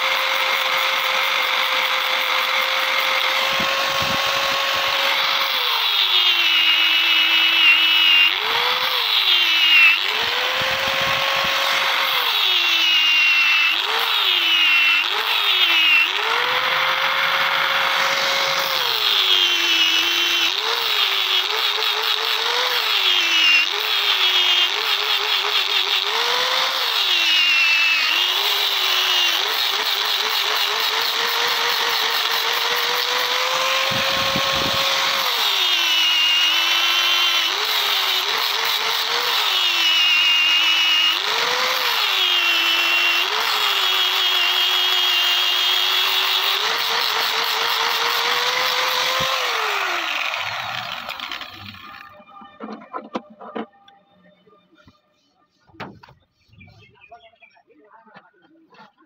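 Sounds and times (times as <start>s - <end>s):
angle grinder grinding metal: 0.0s - 54.0s.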